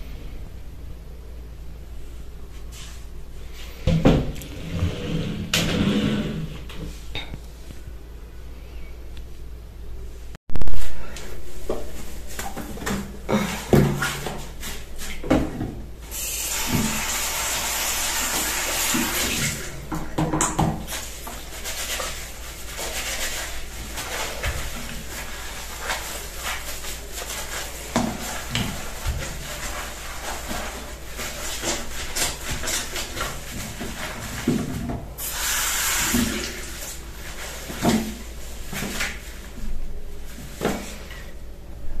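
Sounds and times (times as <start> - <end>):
cloth wiping ceramic basin: 20.8 - 39.6.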